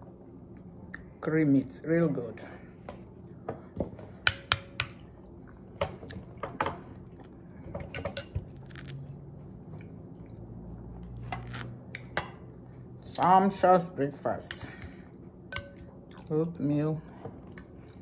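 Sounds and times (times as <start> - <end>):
quiet chewing: 9.7 - 11.2.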